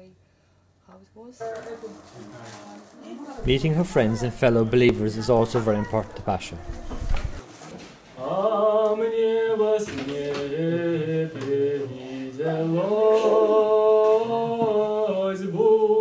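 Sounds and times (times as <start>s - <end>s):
voices chanting in harmony: 8.2s - 16.0s.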